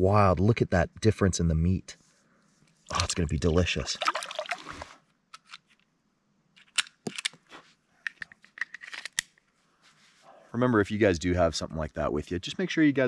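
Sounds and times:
water splashing: 2.9 - 5.0
handgun mechanical clicks: 6.6 - 7.4.

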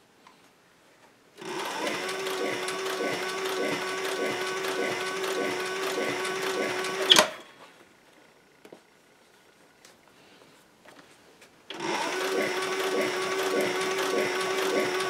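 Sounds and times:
sewing machine running: 1.4 - 7.3, 11.7 - 15.0
sharp clack of sewing machine: 1.4 - 7.4, 11.7 - 15.0.

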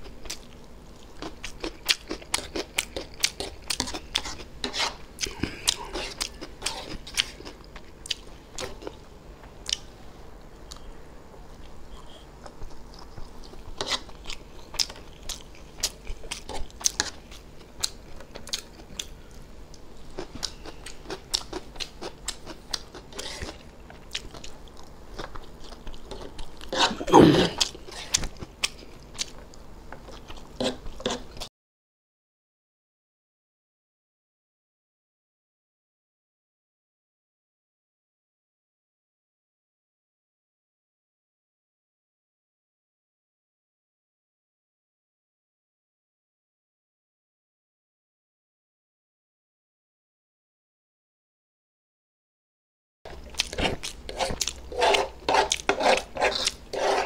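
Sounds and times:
wet chewing with crunches: 0.1 - 9.0, 11.6 - 19.1, 19.7 - 31.5, 53.1 - 57.0.

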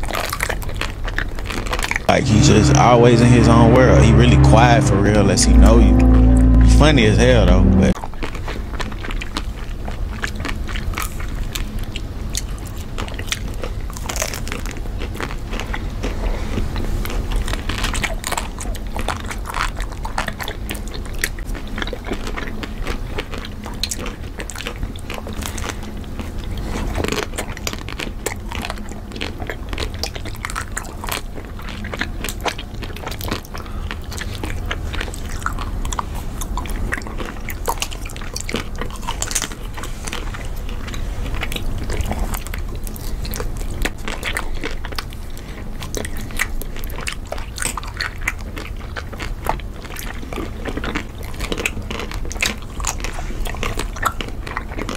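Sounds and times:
wet chewing: 0.0 - 2.1, 26.9 - 54.9.

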